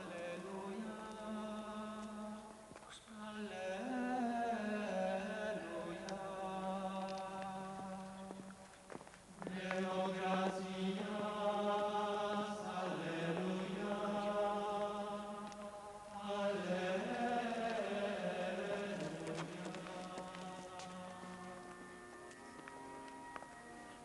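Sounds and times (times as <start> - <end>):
voices singing plainchant: 0.0 - 8.5, 9.4 - 22.6.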